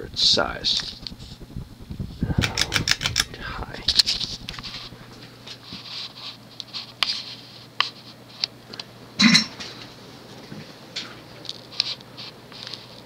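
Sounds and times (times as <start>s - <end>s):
air rushing from fan blades: 0.0s - 6.4s
ceiling fan motor hum: 0.0s - 13.0s.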